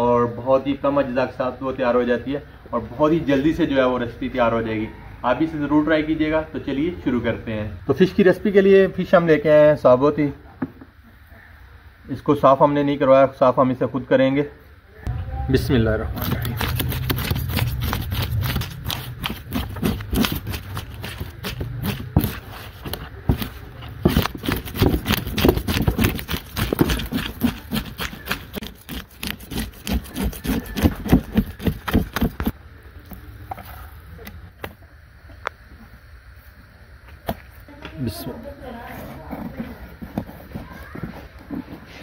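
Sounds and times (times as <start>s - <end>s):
knife scraping fish scales: 16.2s - 32.5s.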